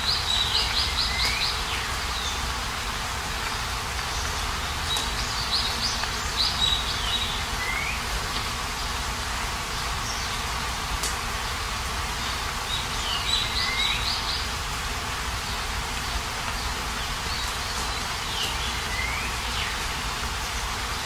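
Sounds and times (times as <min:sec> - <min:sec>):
steady rain falling: 0:00.0 - 0:21.0
bird whistled calls: 0:13.0 - 0:14.2.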